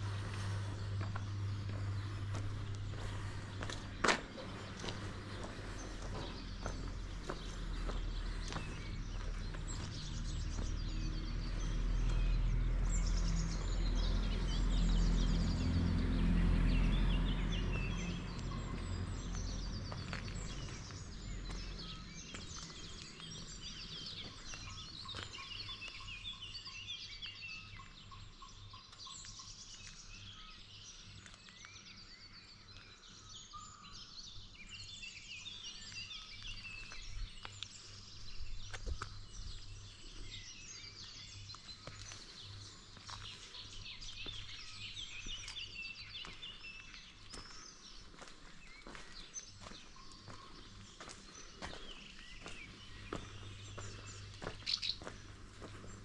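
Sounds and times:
low rumble: 0:00.0 - 0:24.0
small birds chirping and singing: 0:00.0 - 0:56.0.

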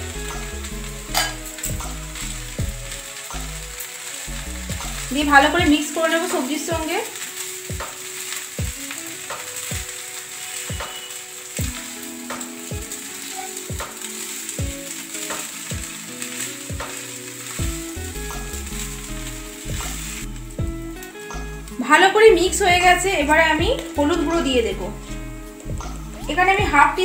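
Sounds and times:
food sizzling in a pan: 0:00.0 - 0:27.0
spatula stroking a pan: 0:01.0 - 0:21.1.

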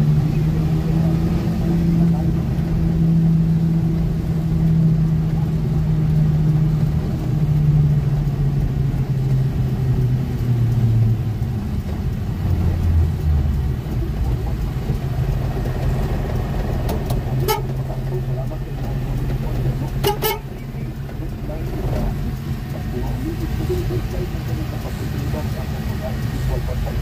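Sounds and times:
road noise: 0:00.0 - 0:27.0
vehicle engine from inside cab: 0:00.0 - 0:27.0.

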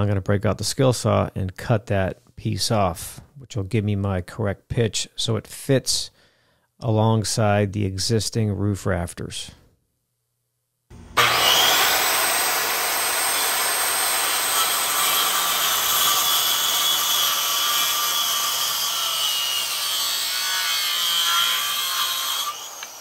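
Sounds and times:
circular saw cutting wood: 0:10.9 - 0:23.0.

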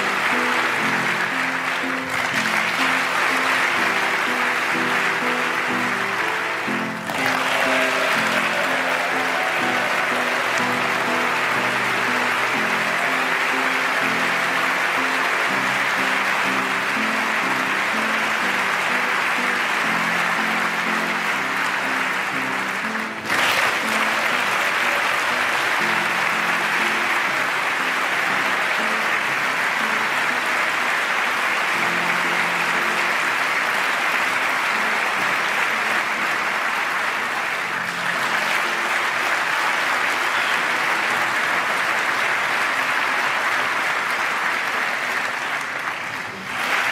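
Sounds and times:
slow instrumental music: 0:00.0 - 0:43.4
crowd applauding: 0:00.0 - 0:46.9.

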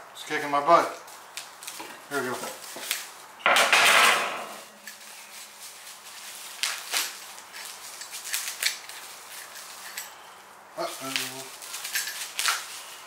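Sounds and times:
packaging rustling and tearing: 0:01.0 - 0:03.3, 0:04.6 - 0:10.0, 0:10.8 - 0:13.0.

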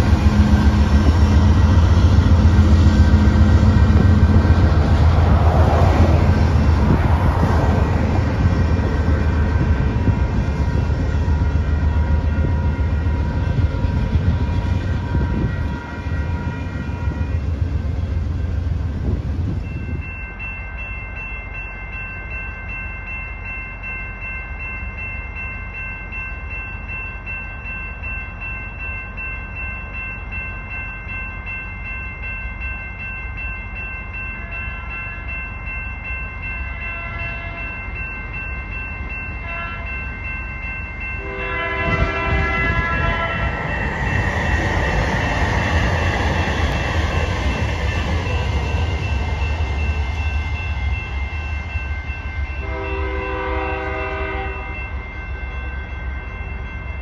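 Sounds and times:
quieter train horn chord: 0:36.7 - 0:37.8, 0:39.4 - 0:40.1, 0:41.0 - 0:43.8, 0:52.5 - 0:55.0
train horn chord: 0:36.8 - 0:37.8, 0:39.4 - 0:40.1, 0:41.1 - 0:43.7, 0:52.6 - 0:54.9
locomotive rumble: 0:40.2 - 0:54.9.

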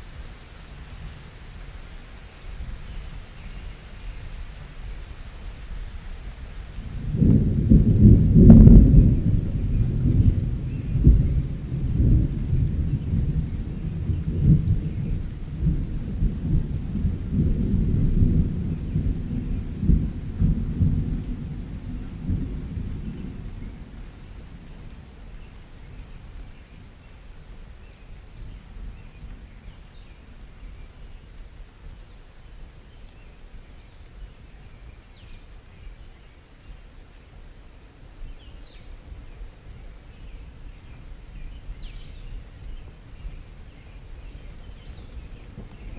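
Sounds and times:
faint hiss of rain: 0:00.0 - 0:45.9
thunder rolling: 0:06.8 - 0:24.7, 0:42.6 - 0:45.9.

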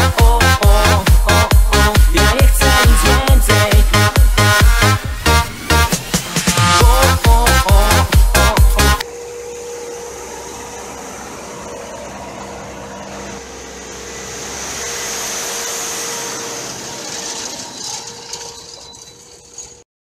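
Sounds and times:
electronic dance music: 0:00.0 - 0:09.0
tractor engine running: 0:00.0 - 0:19.8.

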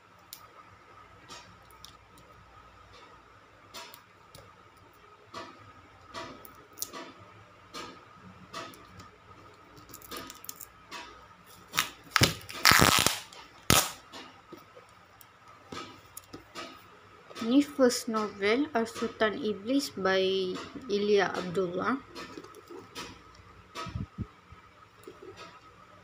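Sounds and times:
packaging crinkling and snapping: 0:11.6 - 0:14.0.

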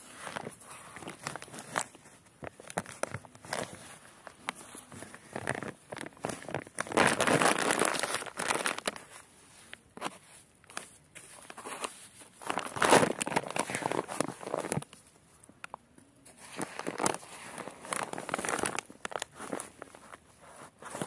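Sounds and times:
soil rustling in plastic sack: 0:00.0 - 0:21.0.

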